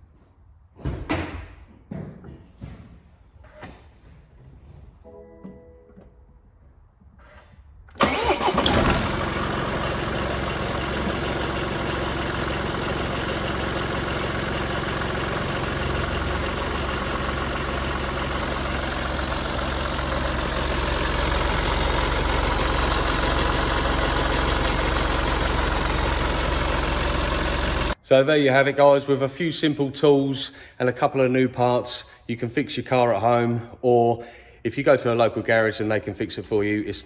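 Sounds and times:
diesel engine starting and idling: 7.8s - 28.0s.

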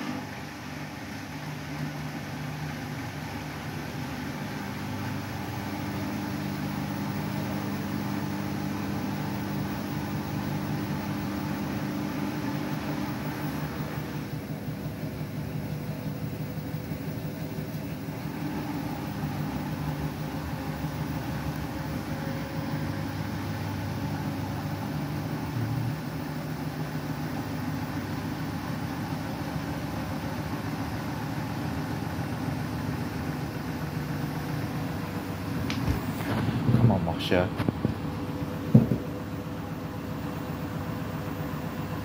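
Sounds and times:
washing machine spinning: 0.0s - 42.0s.

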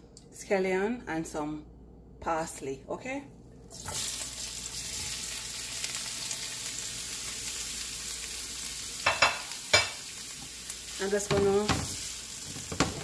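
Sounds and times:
vegetables sizzling in hot oil: 3.7s - 13.0s.

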